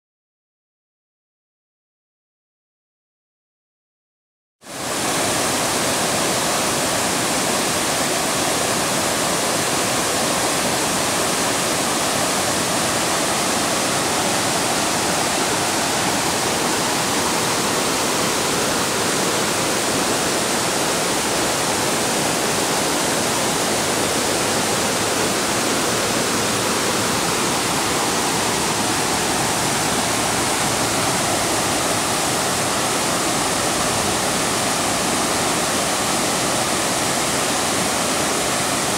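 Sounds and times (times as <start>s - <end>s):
waterfall rushing: 4.7s - 38.9s.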